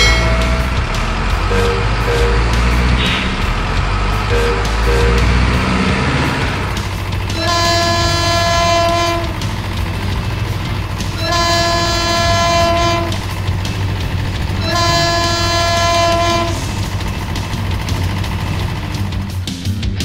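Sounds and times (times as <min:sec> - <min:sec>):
train horn blasts: 0:00.0 - 0:03.6, 0:04.2 - 0:06.7, 0:07.3 - 0:09.6, 0:11.2 - 0:13.4, 0:14.6 - 0:16.7
train rumbling: 0:00.0 - 0:19.8.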